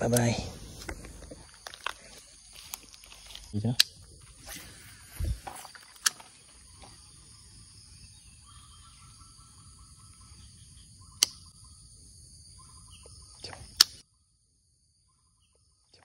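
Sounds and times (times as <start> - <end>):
sharp clicks: 3.7 - 4.0, 5.8 - 6.3, 11.2 - 11.5, 13.4 - 14.0.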